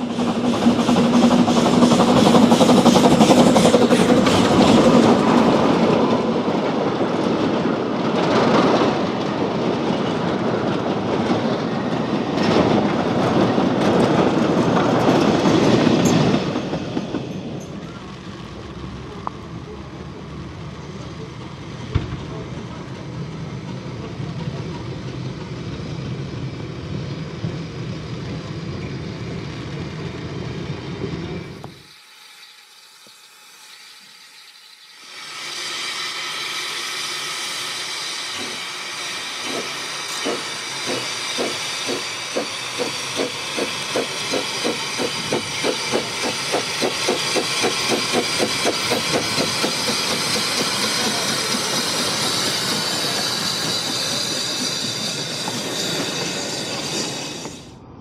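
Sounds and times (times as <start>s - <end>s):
steam hissing: 0.0s - 6.3s, 31.4s - 57.8s
steam locomotive exhaust beats: 0.0s - 32.0s, 33.0s - 57.8s.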